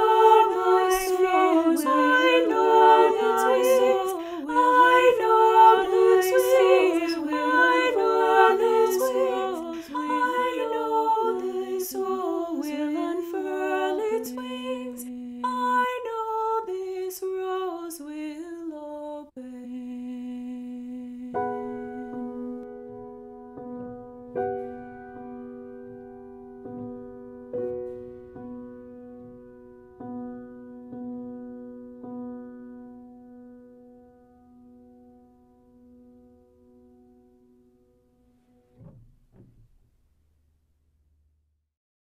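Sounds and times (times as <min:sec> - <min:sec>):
person singing unaccompanied: 0:00.0 - 0:22.5.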